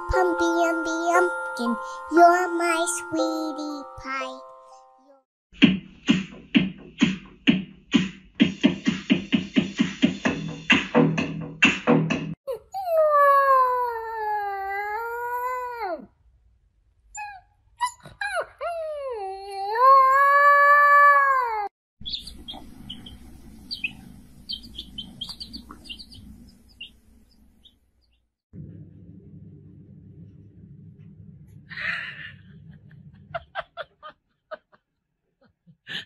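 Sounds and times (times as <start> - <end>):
faint high chirps: 22.0 - 28.2
low hum: 28.6 - 33.6.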